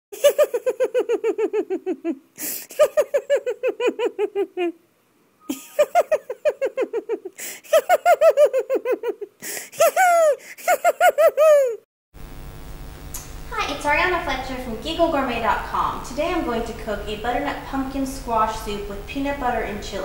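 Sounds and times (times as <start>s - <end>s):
high-pitched giggling laughter: 0.2s - 4.8s, 5.5s - 11.8s.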